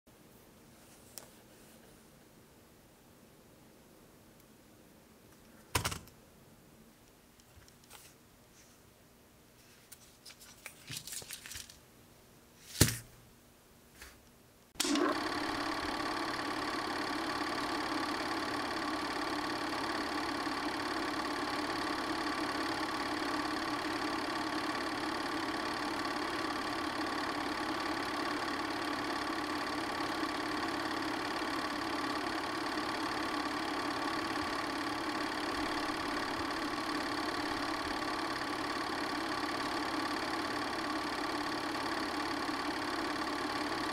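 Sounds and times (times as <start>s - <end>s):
film projector whirring: 14.8s - 43.9s
film reel click: 14.8s - 43.9s.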